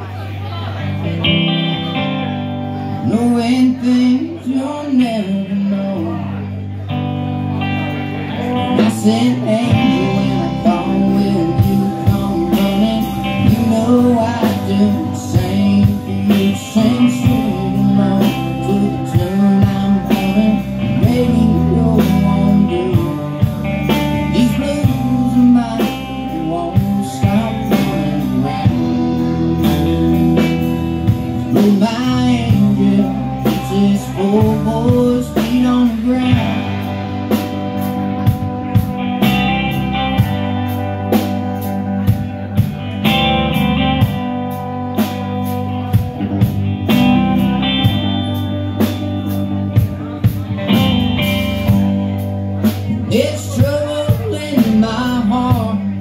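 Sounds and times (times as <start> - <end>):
live band playing: 0.0 - 56.0.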